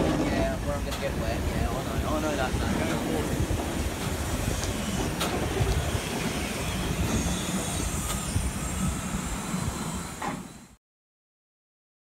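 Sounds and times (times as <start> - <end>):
rumble of train wheels: 0.0 - 10.8
steam hissing: 0.0 - 10.8.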